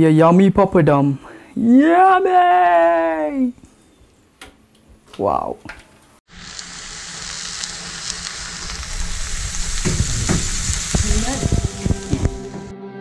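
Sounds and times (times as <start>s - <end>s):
food sizzling in wok: 6.3s - 12.7s
spoon scraping wok: 6.8s - 12.7s.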